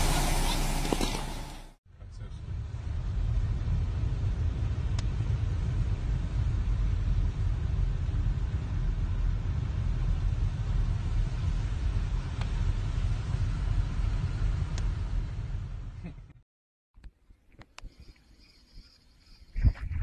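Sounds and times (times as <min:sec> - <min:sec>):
road noise: 0:00.0 - 0:15.9
heavy vehicles rumbling: 0:00.0 - 0:16.0.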